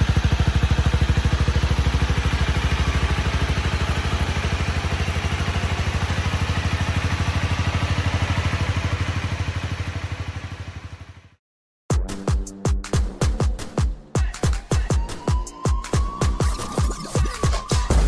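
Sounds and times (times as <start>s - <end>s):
motorcycle engine idling: 0.0s - 11.4s.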